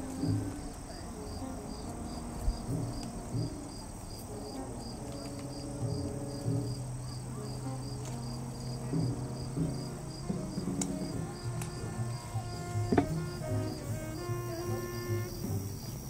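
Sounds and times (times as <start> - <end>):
high-pitched insect drone: 0.0 - 16.0
insects chirping: 0.0 - 16.0
soft low held notes: 0.0 - 16.0.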